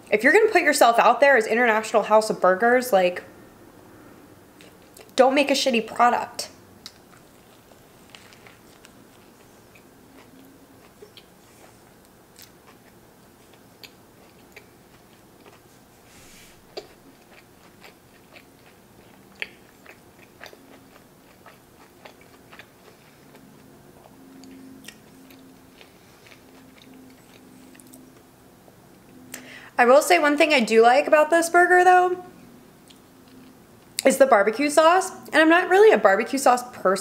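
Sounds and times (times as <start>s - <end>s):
close chewing with crunches: 6.8s - 28.3s.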